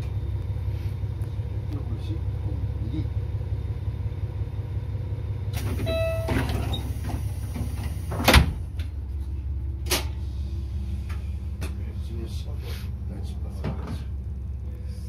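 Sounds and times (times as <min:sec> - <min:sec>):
diesel engine rumbling: 0:00.0 - 0:15.0
short beeping tone: 0:05.8 - 0:06.5.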